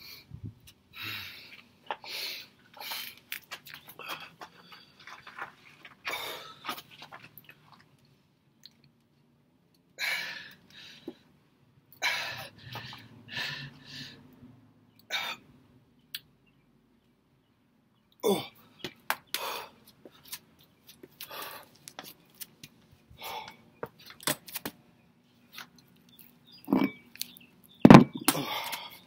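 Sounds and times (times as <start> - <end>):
man breathing forcefully: 12.0 - 14.3.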